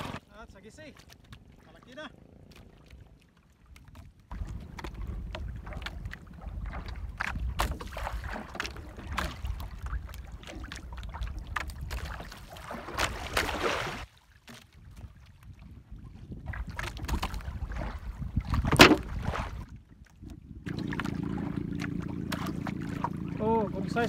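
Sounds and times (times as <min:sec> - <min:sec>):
water lapping against boat: 0:00.0 - 0:24.0
wind buffeting microphone: 0:04.3 - 0:14.0, 0:14.7 - 0:24.0
knocks and clicks handling fish: 0:18.6 - 0:19.1.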